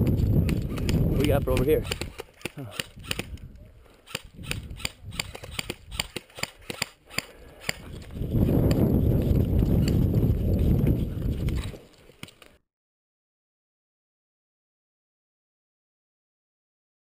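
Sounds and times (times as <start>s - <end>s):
airsoft guns firing: 0.4s - 3.4s, 4.0s - 7.8s.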